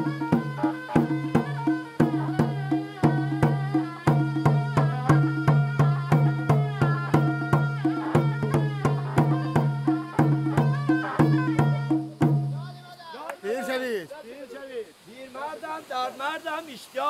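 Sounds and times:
shawm wavering melody: 0.0s - 12.9s
drum beats: 0.0s - 13.6s.

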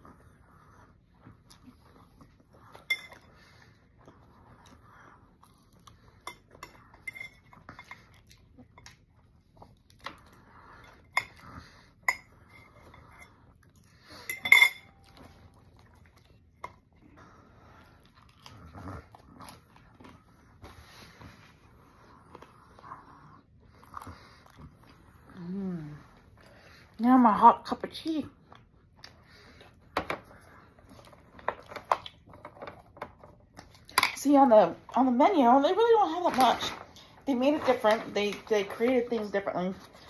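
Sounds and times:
chewing: 0.0s - 27.0s, 28.3s - 34.2s
fork clinking on a plate: 14.3s - 15.2s.

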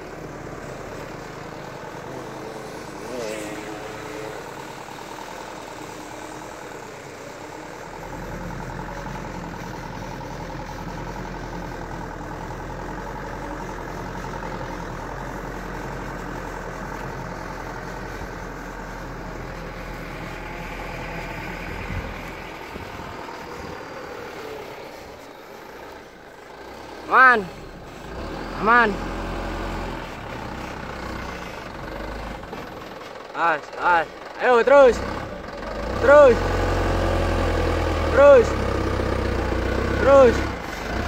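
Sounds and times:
truck engine at low revs: 0.0s - 41.0s.

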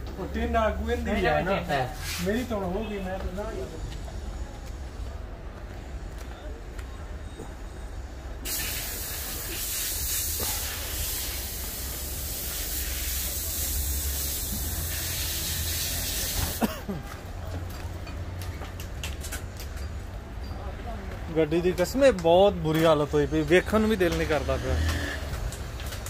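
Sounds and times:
steady hiss: 8.4s - 16.7s.

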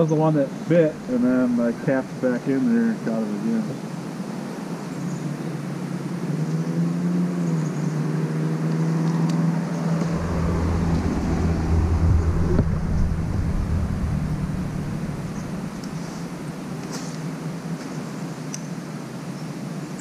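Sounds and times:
deep rumble of passing vehicle: 0.8s - 2.2s, 6.6s - 17.3s
vehicle engine running: 9.8s - 17.0s.

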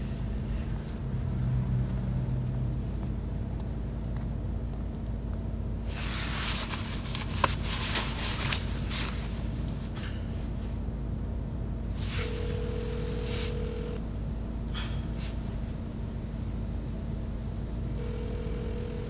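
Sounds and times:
car cabin hum: 0.0s - 19.0s
clothing rustling: 5.9s - 10.7s.

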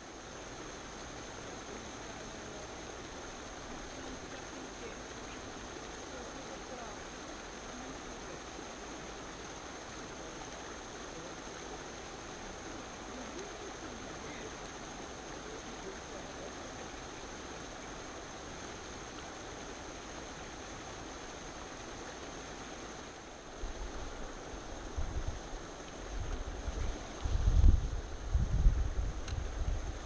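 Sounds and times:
rushing outdoor ambience: 0.0s - 30.0s
wind buffeting microphone: 26.1s - 30.0s.

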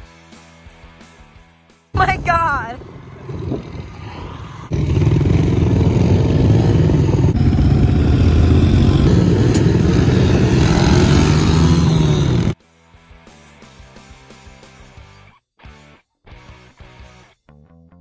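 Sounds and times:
motorbike engines rumbling: 2.0s - 12.6s.

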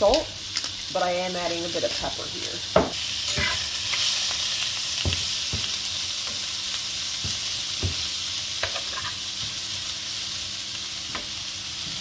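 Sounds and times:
food sizzling in a frying pan: 0.0s - 12.0s
metal spatula scraping a pan: 3.3s - 4.2s, 8.6s - 9.2s.

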